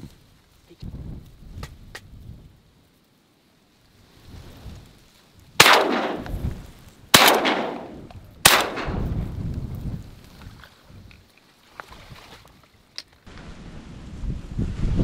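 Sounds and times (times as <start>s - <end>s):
shotgun shots: 5.6s - 9.1s.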